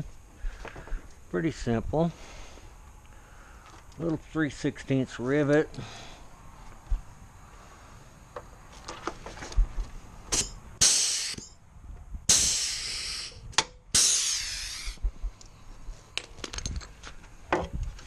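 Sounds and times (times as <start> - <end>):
pneumatic rivet gun air hiss: 10.3 - 11.6, 12.3 - 15.0.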